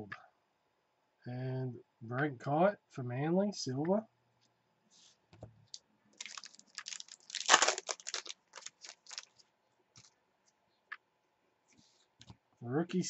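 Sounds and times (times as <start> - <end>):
foil pack crinkling: 6.2 - 9.4.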